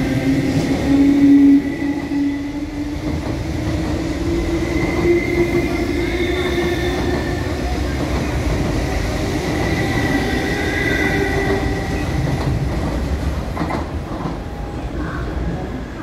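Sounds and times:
high train whine: 0:00.0 - 0:16.0
train wheels rumbling on rail: 0:00.0 - 0:16.0
rail-joint clicks: 0:11.4 - 0:14.4.

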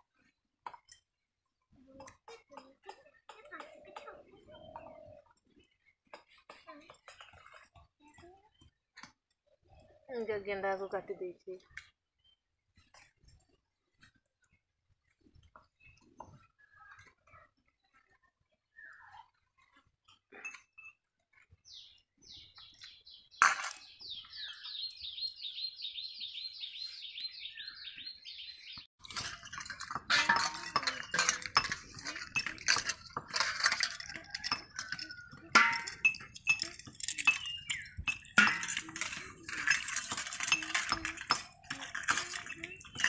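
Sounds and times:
snails scraping against steel bowl: 0:29.0 - 0:43.0.

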